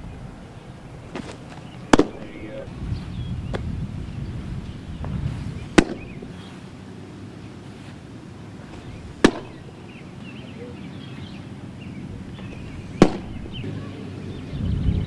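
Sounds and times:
baseball smacking into leather mitt: 1.1s - 2.7s, 3.5s - 3.7s, 5.0s - 6.5s, 8.6s - 10.4s, 12.3s - 13.6s.

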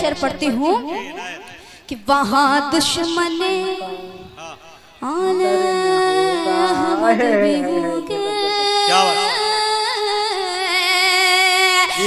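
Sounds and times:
woman singing with vibrato: 5.0s - 12.0s.

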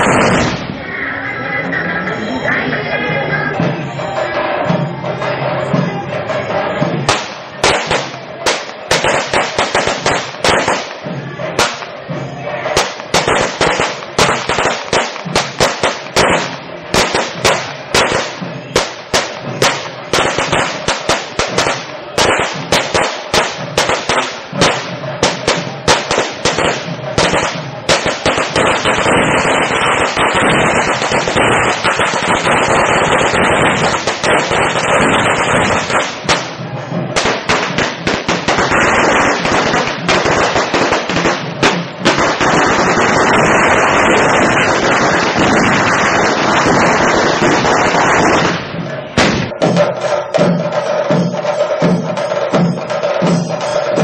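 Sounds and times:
firecrackers banging: 0.0s - 1.0s, 3.6s - 54.0s.

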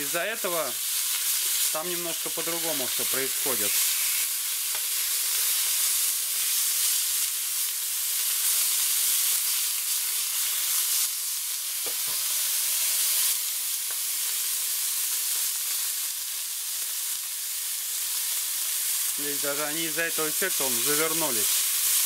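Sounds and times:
steaks sizzling in fat: 0.0s - 22.0s.

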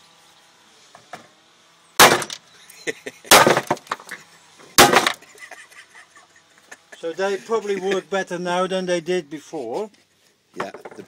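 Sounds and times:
hammer smashing capacitors: 2.0s - 2.4s, 3.3s - 4.0s, 4.8s - 5.2s.

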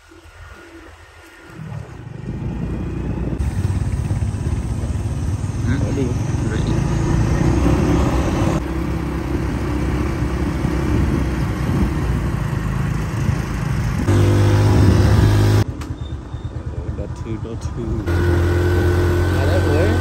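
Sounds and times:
wind rushing over microphone: 0.6s - 8.6s, 9.7s - 15.6s
small motorcycle engine running: 2.0s - 20.0s.

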